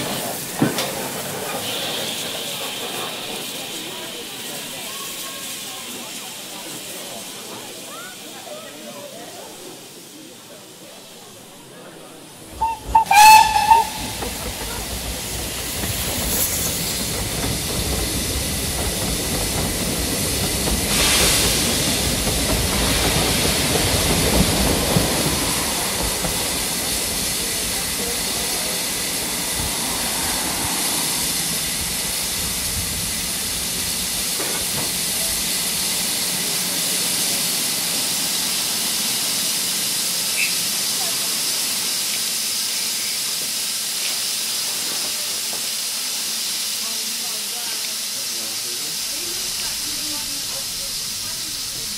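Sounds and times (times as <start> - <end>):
train rumble: 0.0 - 8.4, 10.7 - 51.9
hiss of steam: 0.0 - 51.9
steam locomotive whistle: 12.6 - 14.6.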